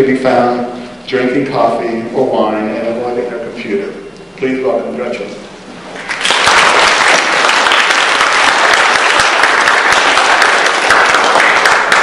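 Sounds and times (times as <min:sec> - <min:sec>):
audience applauding: 0:06.0 - 0:12.0.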